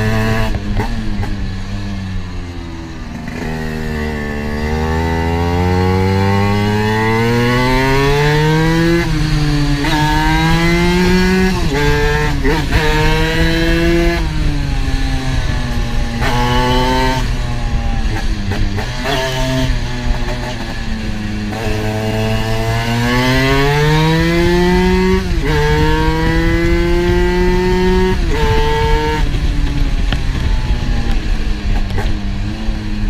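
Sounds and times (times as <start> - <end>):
scooter engine accelerating: 0.0 - 33.0.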